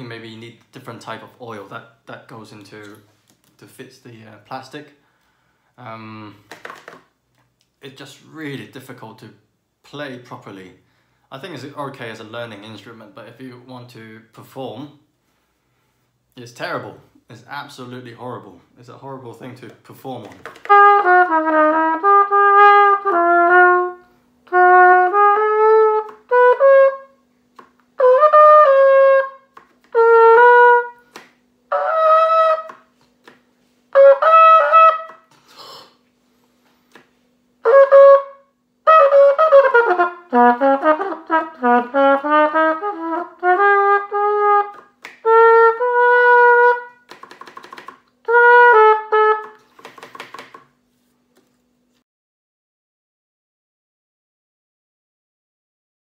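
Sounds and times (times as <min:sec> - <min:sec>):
person talking: 0:00.0 - 0:05.0, 0:07.8 - 0:15.0, 0:16.4 - 0:20.6
plastic cornet playing a tune: 0:20.6 - 0:27.2, 0:28.0 - 0:31.1, 0:31.7 - 0:32.9, 0:33.9 - 0:35.3, 0:37.6 - 0:49.6.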